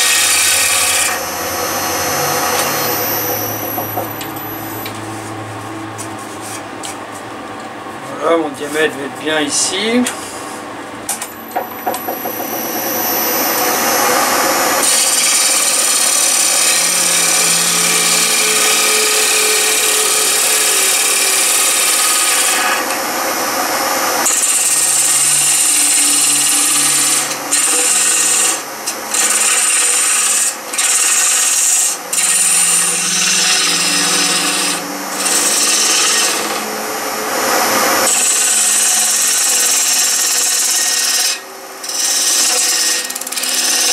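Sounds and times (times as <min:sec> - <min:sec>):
lathe tool cutting wood hiss: 0:12.2 - 0:23.0, 0:24.2 - 0:43.9.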